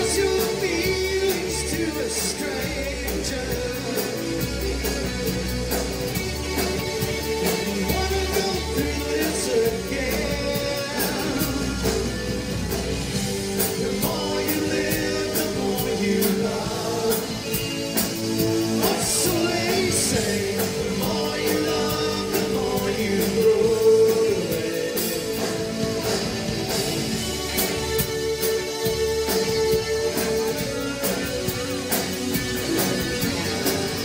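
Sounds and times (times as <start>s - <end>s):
man singing: 0.0s - 5.7s, 7.4s - 12.8s, 13.5s - 26.1s
bass guitar: 0.0s - 34.0s
drum beat with cymbals: 0.0s - 34.0s.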